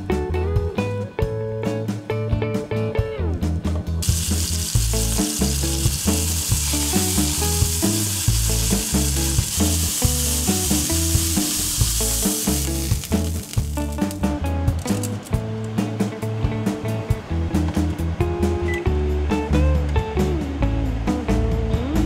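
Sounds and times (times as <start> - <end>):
background music: 0.0 - 22.0
meat sizzling in a frying pan: 4.0 - 14.2.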